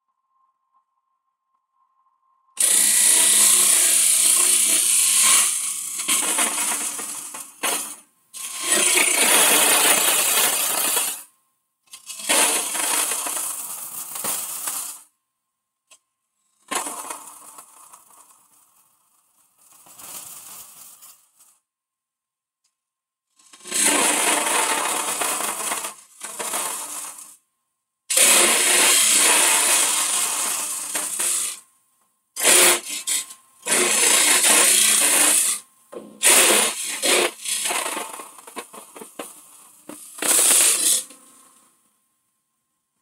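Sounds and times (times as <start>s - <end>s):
lathe tool scraping wood: 2.6s - 11.2s, 12.1s - 13.6s, 23.6s - 27.2s, 28.1s - 31.6s, 32.4s - 35.6s, 36.2s - 39.3s, 39.9s - 41.2s.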